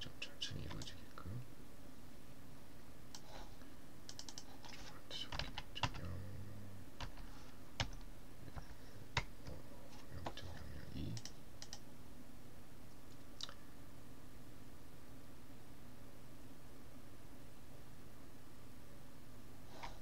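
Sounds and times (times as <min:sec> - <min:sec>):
keyboard and mouse clicks: 0:00.6 - 0:01.0, 0:04.1 - 0:06.1, 0:07.0 - 0:10.4, 0:11.1 - 0:11.8.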